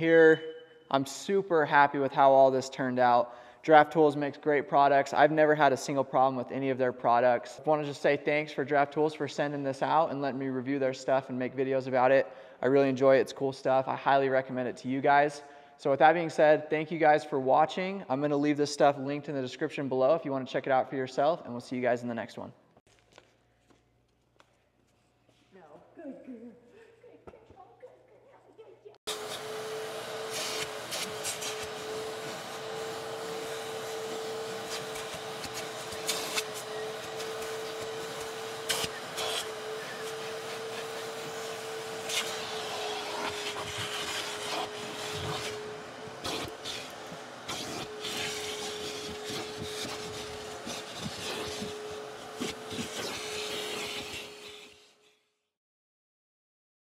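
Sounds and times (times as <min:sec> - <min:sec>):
vacuum cleaner whining: 0:29.0 - 0:55.2
nozzle scraping leather seat: 0:29.1 - 0:55.0.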